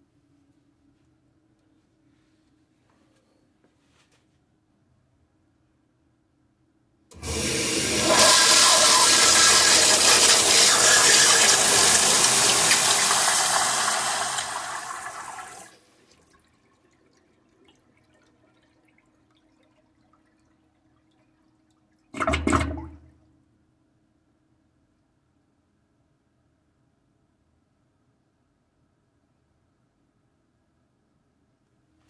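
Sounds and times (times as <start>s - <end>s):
toilet flushing: 7.1s - 21.3s, 22.1s - 23.1s.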